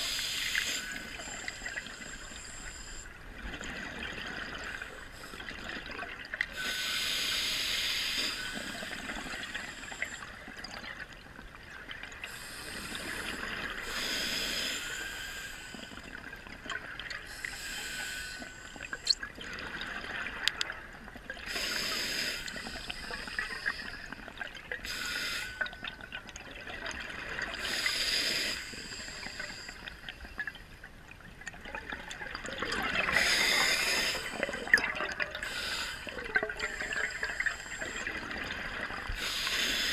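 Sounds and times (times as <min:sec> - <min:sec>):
regulator hiss: 0:00.0 - 0:03.1, 0:06.6 - 0:10.2, 0:12.3 - 0:16.0, 0:17.3 - 0:19.1, 0:21.5 - 0:24.1, 0:24.8 - 0:25.6, 0:27.6 - 0:29.8, 0:33.1 - 0:34.4, 0:35.4 - 0:38.0, 0:39.2 - 0:39.9
bubbling exhaled air underwater: 0:31.3 - 0:39.9.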